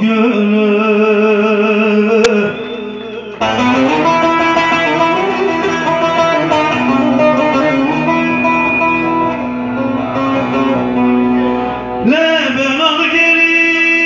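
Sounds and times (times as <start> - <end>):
amplified plucked lute: 3.4 - 12.1.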